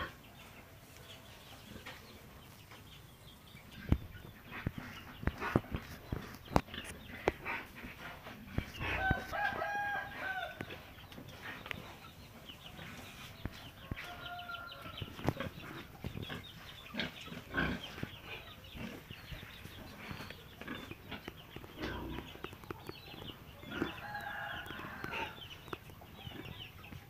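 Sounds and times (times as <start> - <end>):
rooster crowing: 8.9 - 10.6, 23.7 - 25.4.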